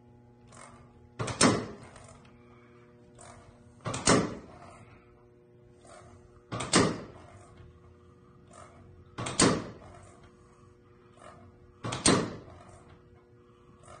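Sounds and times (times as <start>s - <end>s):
faint steady hum: 0.0s - 14.0s
pneumatic cylinder bursts: 0.5s - 5.0s, 5.7s - 7.6s, 8.4s - 13.0s.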